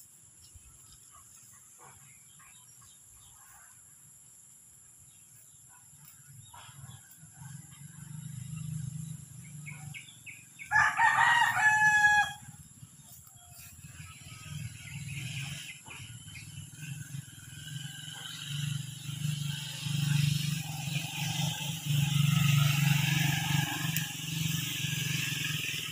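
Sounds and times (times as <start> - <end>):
rooster crowing: 10.6 - 12.6, 22.0 - 24.5.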